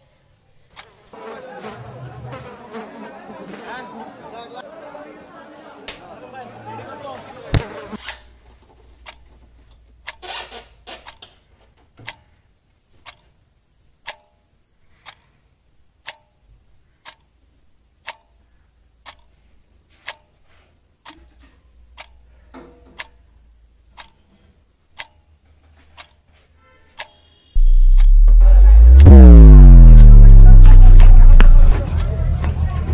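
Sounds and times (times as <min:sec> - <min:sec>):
clock ticking: 0:09.0 - 0:09.2, 0:10.0 - 0:10.2, 0:14.0 - 0:15.2, 0:16.0 - 0:16.4, 0:18.0 - 0:18.4, 0:19.0 - 0:19.3, 0:20.0 - 0:20.4, 0:21.0 - 0:22.2, 0:23.0 - 0:23.2, 0:23.9 - 0:24.3, 0:24.9 - 0:25.4, 0:26.0 - 0:26.2, 0:27.0 - 0:31.7.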